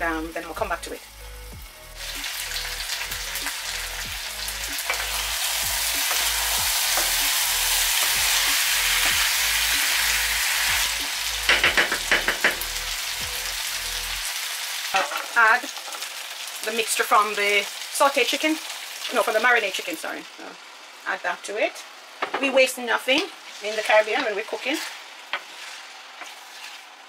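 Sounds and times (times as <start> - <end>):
chicken sizzling in a pan: 0.0 - 27.0
wooden spoon striking a pan: 6.0 - 7.4, 11.5 - 12.7.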